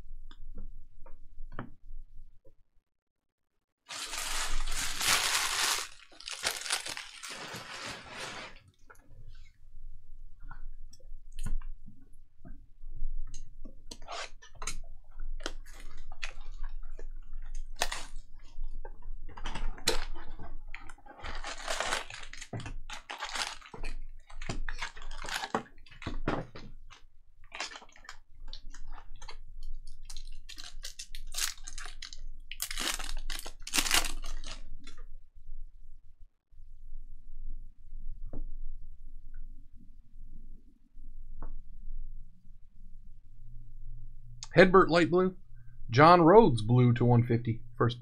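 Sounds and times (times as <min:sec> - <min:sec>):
wrappers crinkling: 0:03.9 - 0:08.6, 0:17.7 - 0:18.2, 0:21.2 - 0:26.0, 0:30.0 - 0:34.9.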